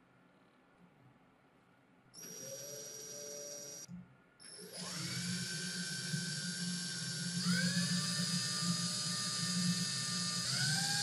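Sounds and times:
cordless drill motor whining: 2.2 - 3.9, 4.5 - 11.0.

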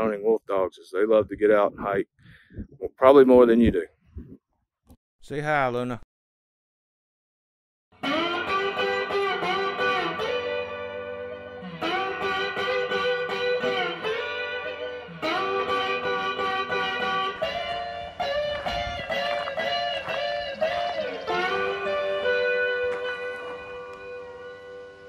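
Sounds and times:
plucked guitar instrumental: 8.0 - 25.0.

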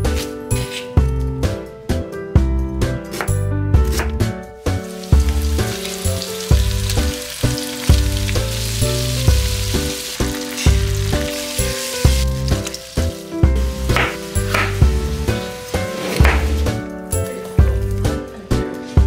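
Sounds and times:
chicken sizzling in hot oil: 4.7 - 16.8.

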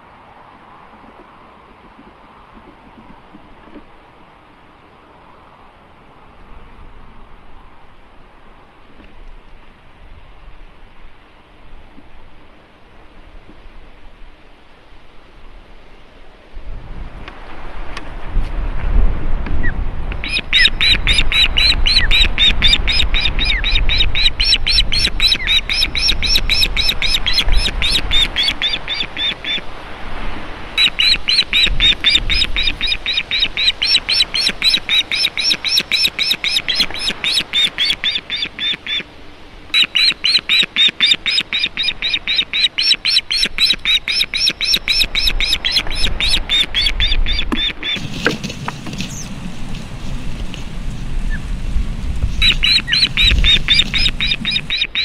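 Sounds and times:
osprey shrill alarm call: 20.2 - 29.7, 30.8 - 39.1, 39.7 - 48.1, 52.4 - 55.0.

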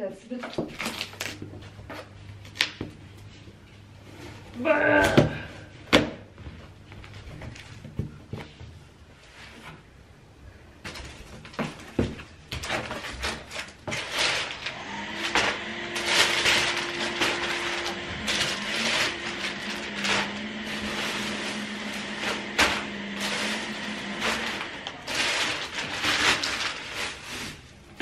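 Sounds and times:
packing paper crinkling: 0.7 - 1.5, 12.5 - 28.0.

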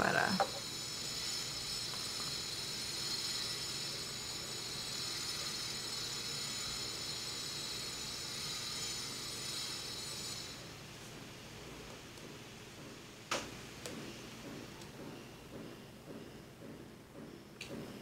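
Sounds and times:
high-pitched whine: 0.0 - 10.8.

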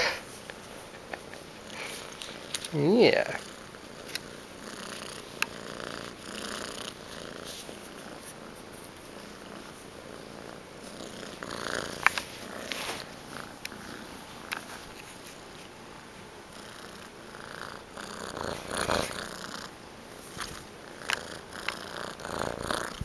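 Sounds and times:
kitten purring: 0.1 - 19.8, 20.4 - 23.0.

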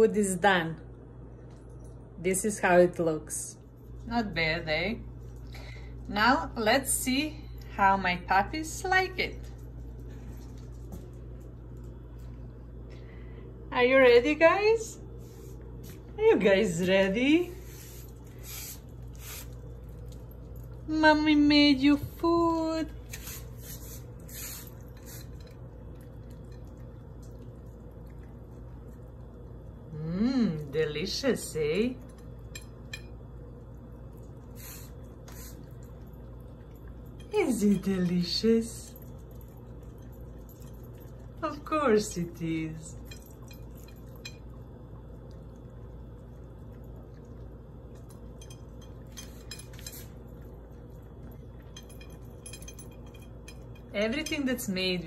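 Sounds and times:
steady low hum: 0.0 - 55.0
dogs chewing wet food: 17.6 - 20.9, 23.0 - 29.9, 31.8 - 42.1, 42.9 - 54.2
bowl clinking: 48.0 - 54.8.

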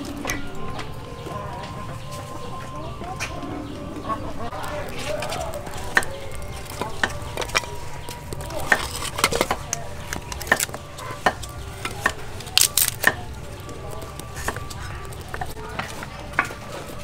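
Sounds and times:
wood knocking on wood and clay: 4.7 - 16.9.

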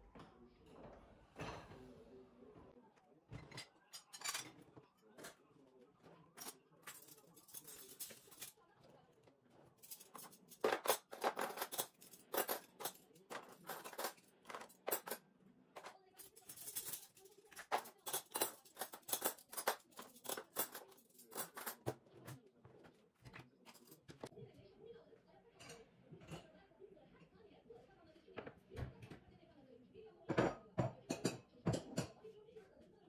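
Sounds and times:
metal cutlery clinking: 3.4 - 5.4, 6.3 - 8.6, 9.6 - 15.2, 15.8 - 22.4, 23.2 - 24.3.

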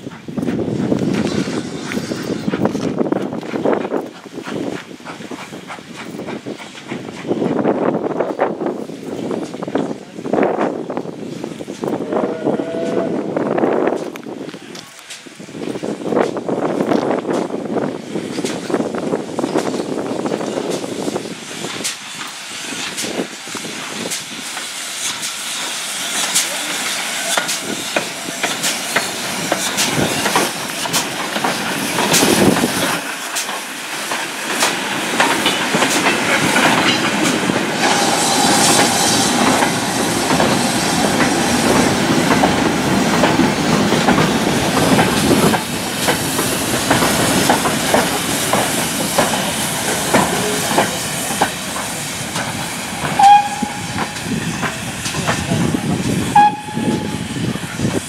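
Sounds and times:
train wheels clanking over rails: 0.0 - 10.0, 13.8 - 58.0
steam hissing: 0.0 - 58.0
high-pitched whistle notes: 53.2 - 54.2, 56.3 - 57.3.

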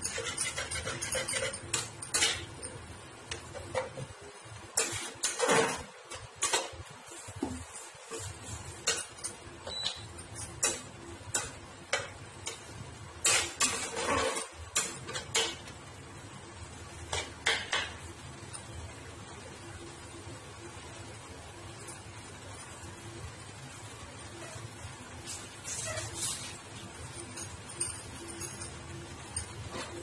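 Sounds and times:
spatula clinking metal pan: 0.0 - 4.0
spatula scraping in pan: 0.0 - 15.8, 24.2 - 30.0.

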